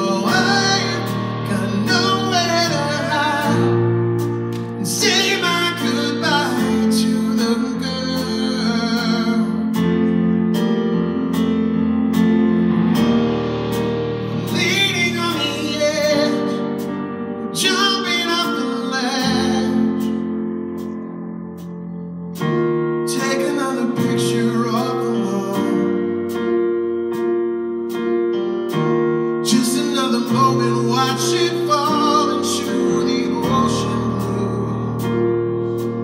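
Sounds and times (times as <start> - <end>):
man singing: 0.0 - 10.2, 14.4 - 16.8, 17.4 - 20.4, 23.1 - 26.3, 29.4 - 35.4
keyboard: 0.0 - 36.0.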